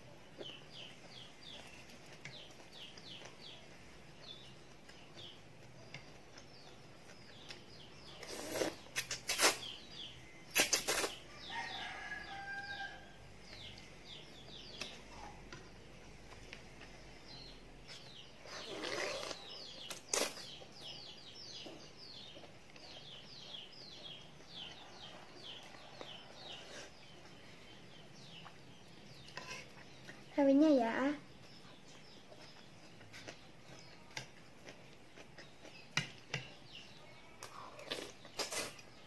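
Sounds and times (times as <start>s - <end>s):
birds chirping: 0.0s - 39.0s
child slurping noodles: 8.2s - 9.6s, 18.6s - 19.4s.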